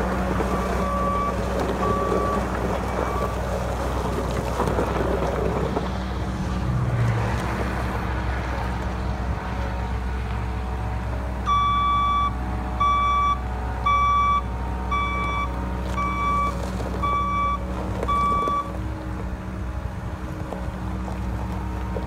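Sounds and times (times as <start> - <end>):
diesel engine running: 0.0 - 22.0
backup alarm beeping: 11.5 - 18.7.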